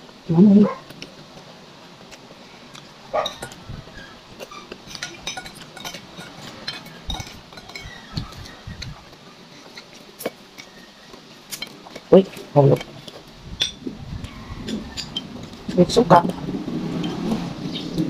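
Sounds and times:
metal spoon scraping a bowl: 3.2 - 9.0, 14.6 - 15.4.

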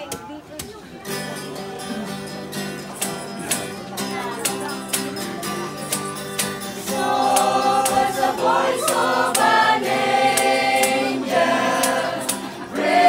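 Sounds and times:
strummed acoustic guitar: 0.1 - 13.0
group singing a carol: 5.8 - 13.0.

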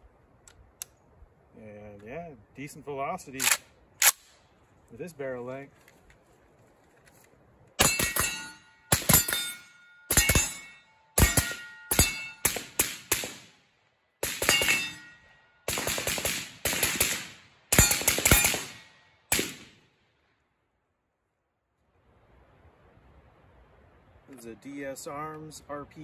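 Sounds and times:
steel targets ringing: 7.8 - 12.8, 14.4 - 15.7
suppressed rifle shots: 11.2 - 13.6, 14.2 - 15.0, 15.7 - 19.9.

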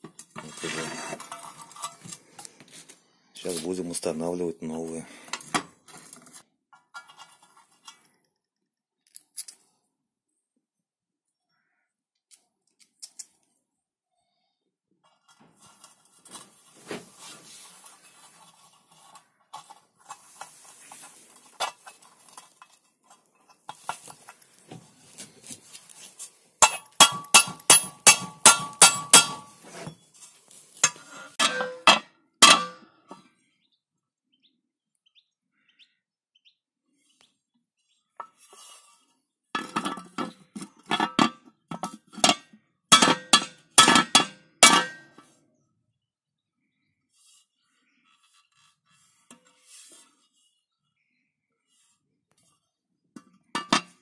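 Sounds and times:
small metal parts clinking: 9.0 - 9.8
hammer striking metal: 26.6 - 29.6.

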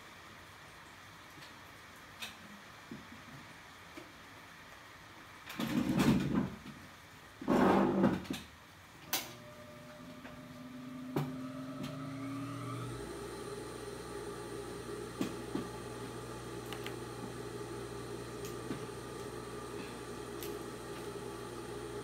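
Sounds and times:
sewing machine motor hum: 9.1 - 22.0.

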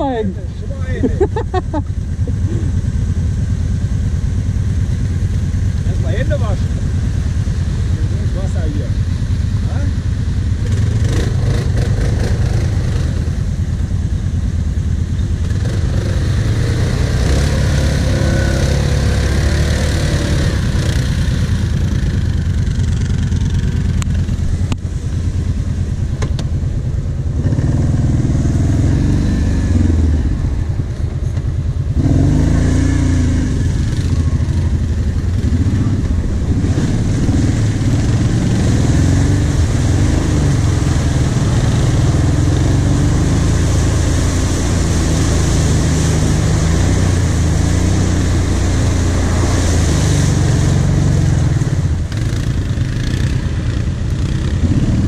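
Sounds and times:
quad bike engine revving: 7.8 - 14.1, 15.2 - 24.8, 27.3 - 55.0
water splashing: 15.3 - 55.0.

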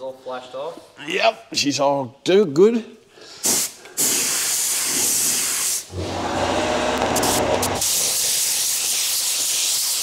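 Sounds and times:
spray gun hissing: 3.4 - 6.0, 6.6 - 10.0
low hum: 5.9 - 7.9.

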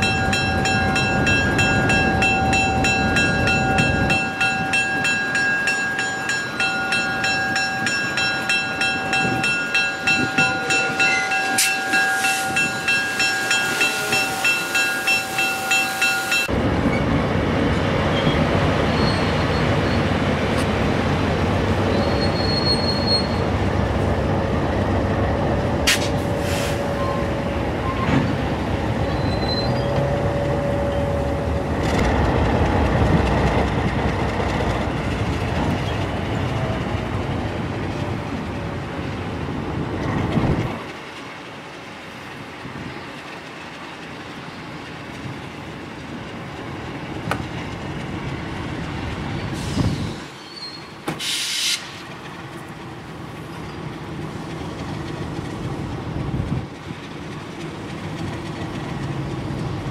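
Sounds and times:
pulsing ringing tones: 0.0 - 16.5
train rumbling on track: 0.0 - 59.9
wheel squeals: 18.1 - 20.2, 21.9 - 23.5, 29.0 - 31.4, 49.4 - 51.0.

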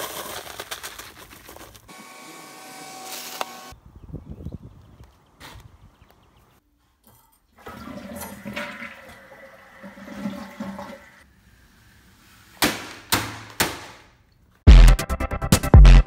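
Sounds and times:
toilet flushing: 7.6 - 11.2.

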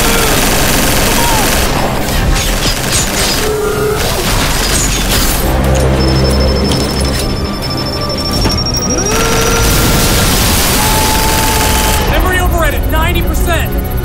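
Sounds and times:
gunfire and booms: 0.0 - 5.4
dramatic orchestral score: 0.0 - 14.0.

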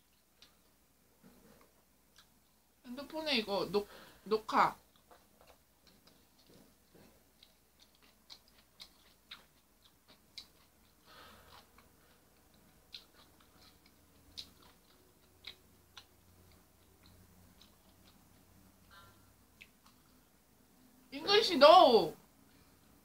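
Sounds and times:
faint chewing crunches: 0.0 - 2.6, 4.7 - 20.4
soft breathy sound: 3.8 - 4.3, 18.8 - 19.4.

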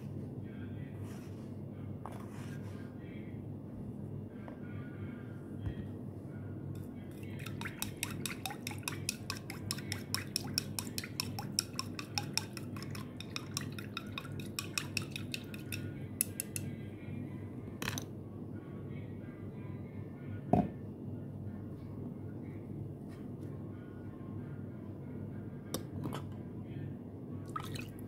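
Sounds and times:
spoon clinking against glass: 7.3 - 16.7.

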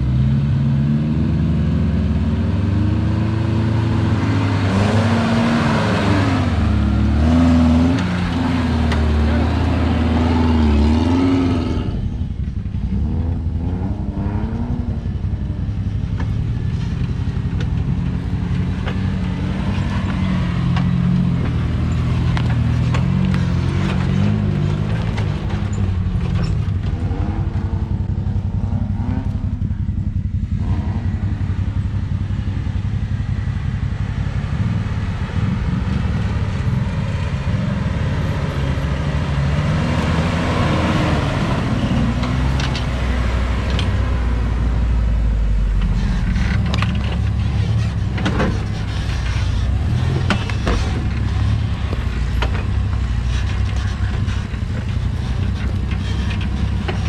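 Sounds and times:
off-road vehicle engine running: 0.0 - 57.0
knocks and rattles: 16.0 - 27.7, 45.7 - 57.0.

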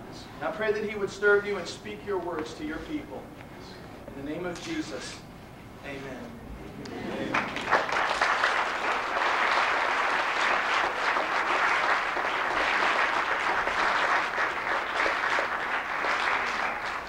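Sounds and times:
congregation applauding: 7.1 - 17.0.

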